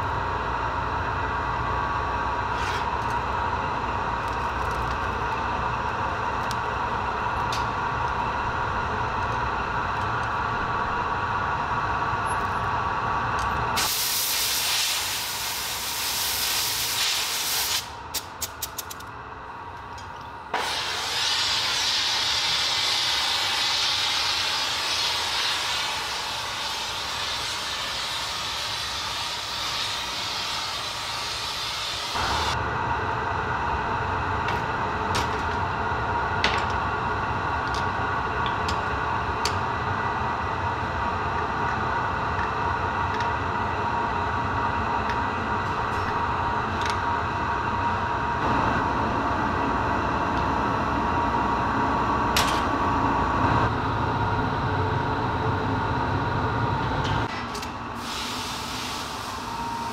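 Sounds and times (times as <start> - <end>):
workshop drone: 0.0 - 59.9
torch flame hissing: 13.8 - 18.0, 20.5 - 32.6, 58.0 - 59.9.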